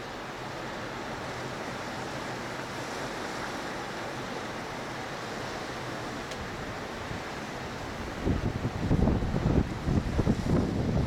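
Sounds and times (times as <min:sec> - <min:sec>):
waves washing: 0:00.0 - 0:11.0
strong wind rushing: 0:08.0 - 0:11.0.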